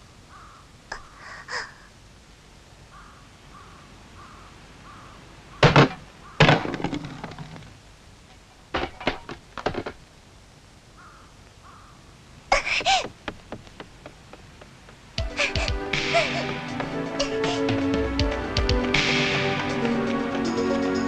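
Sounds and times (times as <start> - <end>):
bird calls: 0.3 - 1.3, 2.9 - 6.5, 11.0 - 17.9
drink can striking wooden boards: 5.6 - 7.4.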